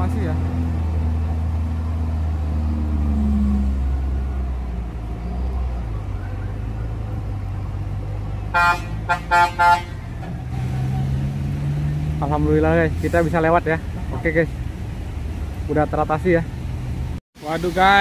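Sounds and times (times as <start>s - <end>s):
diesel truck engines droning: 0.0s - 18.0s
vehicle horn short toots: 8.5s - 10.0s.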